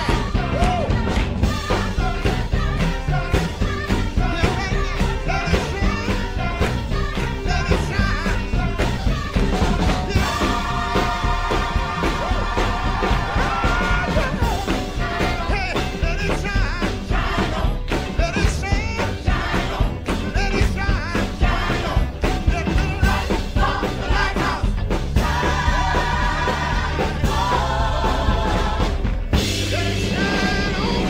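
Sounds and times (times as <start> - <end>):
bass: 0.0 - 31.0
drum hits: 0.0 - 31.0
gospel choir singing: 0.0 - 31.0.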